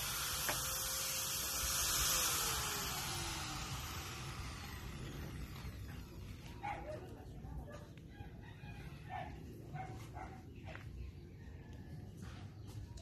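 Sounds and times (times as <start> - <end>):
rooster crowing: 8.1 - 9.4.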